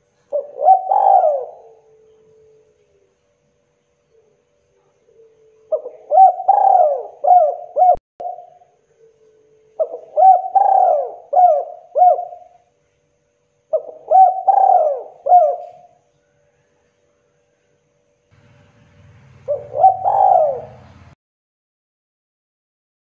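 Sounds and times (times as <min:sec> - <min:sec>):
dove cooing: 0:00.0 - 0:03.1, 0:04.1 - 0:12.6, 0:13.7 - 0:16.0, 0:19.3 - 0:21.1.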